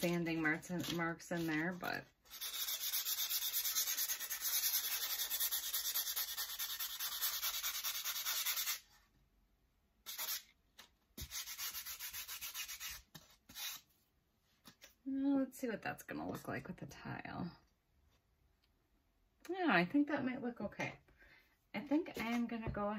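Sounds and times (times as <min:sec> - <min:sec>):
sandpaper rubbing on wood: 0:02.3 - 0:08.8, 0:10.1 - 0:10.5, 0:11.2 - 0:13.8.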